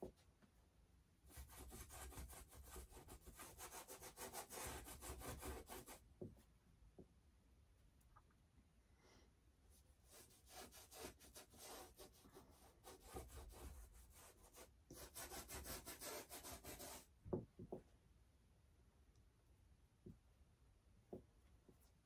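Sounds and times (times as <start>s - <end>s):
brush strokes on canvas: 9.7s - 17.1s.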